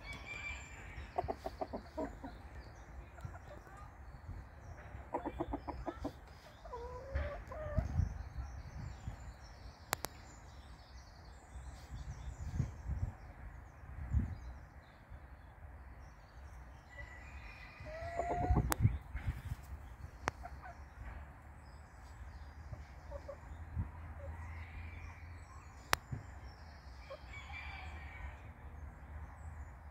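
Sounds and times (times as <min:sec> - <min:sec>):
chickens clucking: 0:00.0 - 0:09.1, 0:17.8 - 0:24.5
small birds chirping: 0:00.0 - 0:29.9.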